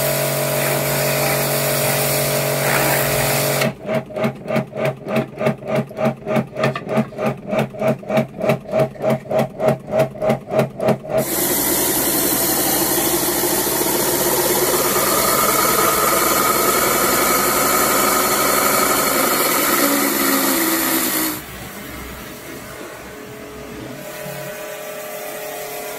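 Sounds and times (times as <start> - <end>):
water jet hissing: 0.0 - 3.7, 11.2 - 25.9
pressure washer pulsing hum: 0.0 - 25.9.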